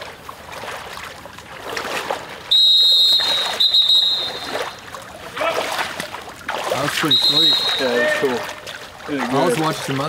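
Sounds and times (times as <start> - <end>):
high whistle blasts: 2.5 - 4.8, 7.0 - 8.2.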